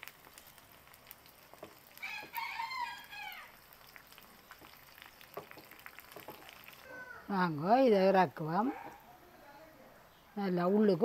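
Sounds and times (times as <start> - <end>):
food sizzling in oil: 0.0 - 9.0
rooster crowing: 2.0 - 3.6, 6.8 - 7.3.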